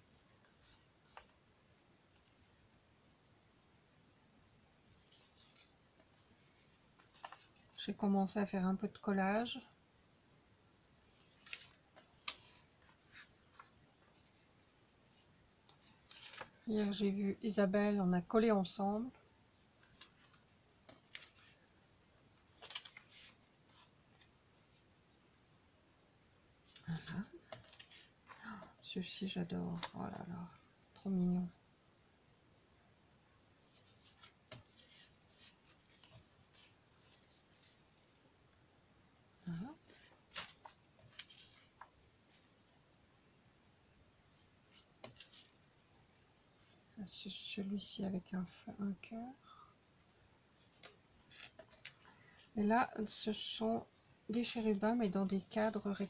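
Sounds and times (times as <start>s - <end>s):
paper rustling: 0.0s - 2.4s, 5.0s - 7.9s, 11.1s - 17.1s, 19.6s - 24.8s, 26.6s - 28.7s, 29.7s - 30.2s, 33.6s - 38.2s, 39.6s - 42.8s, 44.3s - 46.8s, 50.6s - 53.4s, 54.2s - 56.0s
paper sticker sheets rustling: 5.1s - 7.9s, 15.7s - 17.1s, 19.8s - 21.6s, 22.4s - 24.3s, 50.6s - 52.5s, 54.3s - 56.0s.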